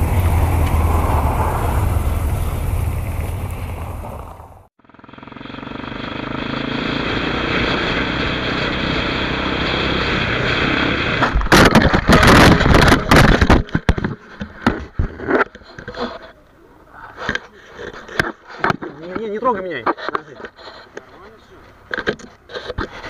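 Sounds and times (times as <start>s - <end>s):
wind noise: 0.0s - 4.7s, 9.6s - 15.3s
motorcycle engine: 0.0s - 14.4s
crash impacts and scraping: 11.1s - 16.4s.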